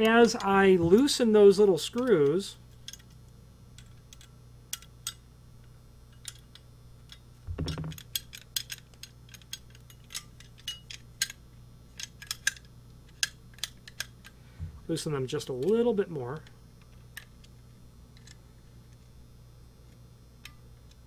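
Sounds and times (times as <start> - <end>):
dull handling knock: 7.5 - 8.0.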